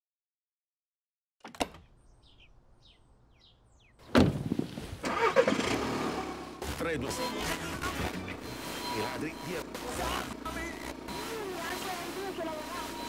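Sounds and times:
birds chirping faintly: 1.7s - 4.3s
car door shutting: 4.0s - 6.4s
car engine starting: 4.3s - 13.0s.

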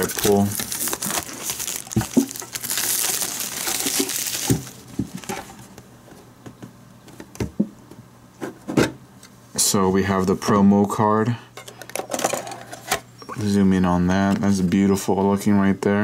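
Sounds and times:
plastic shrink-wrap crinkling: 0.0s - 5.7s.

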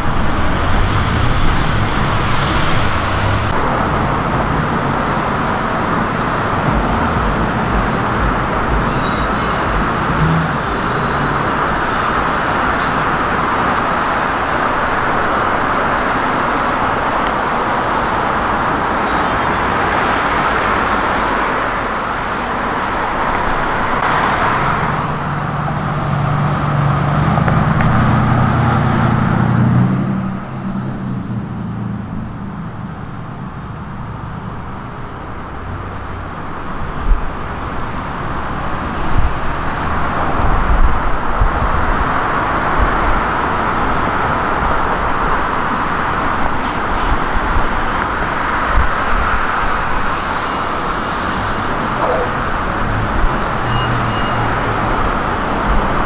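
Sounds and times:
road traffic passing: 0.0s - 56.0s
vehicle engine drone: 0.0s - 56.0s
low thumps: 6.2s - 10.8s.

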